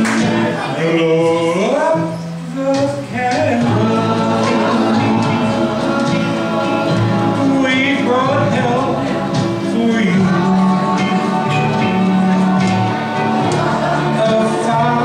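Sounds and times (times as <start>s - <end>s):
man singing a slow ballad: 0.0s - 6.3s, 7.0s - 12.4s
backing vocals: 0.0s - 15.0s
recorded backing music: 0.0s - 15.0s.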